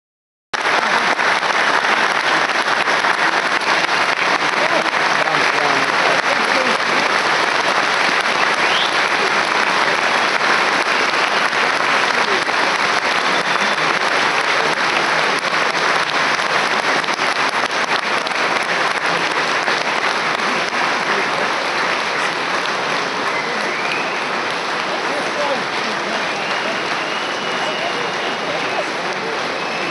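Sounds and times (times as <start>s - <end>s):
stadium crowd applauding: 0.6s - 29.9s.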